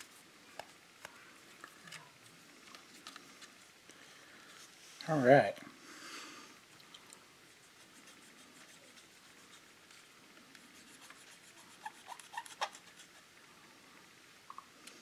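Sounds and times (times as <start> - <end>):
cotton swab rubbing on plastic: 7.4 - 13.3.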